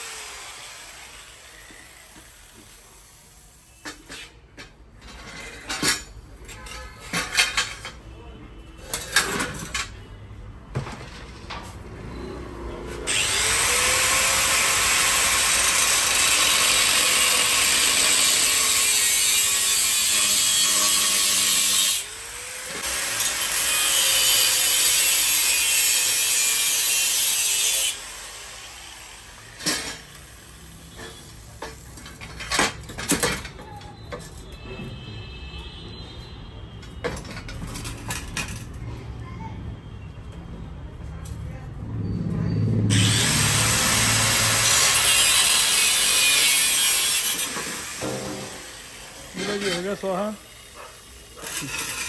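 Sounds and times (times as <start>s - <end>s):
angle grinder cutting metal: 0.0s - 2.8s, 13.1s - 30.4s, 42.9s - 52.0s.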